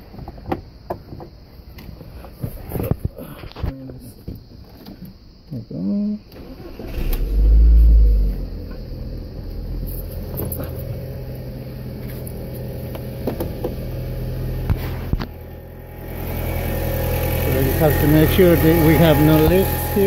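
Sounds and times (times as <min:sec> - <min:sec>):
car engine starting and idling: 0:06.3 - 0:20.0.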